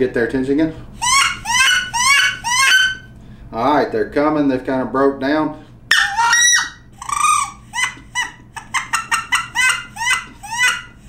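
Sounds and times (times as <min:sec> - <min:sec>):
duck call squealing notes: 0:01.0 - 0:03.1, 0:05.9 - 0:11.0.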